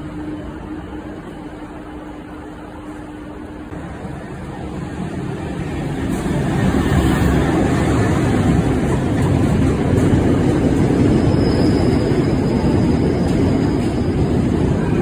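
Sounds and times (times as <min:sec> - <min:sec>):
diesel locomotive passing: 0:00.0 - 0:15.0
wagon wheels rumbling on rails: 0:06.1 - 0:15.0.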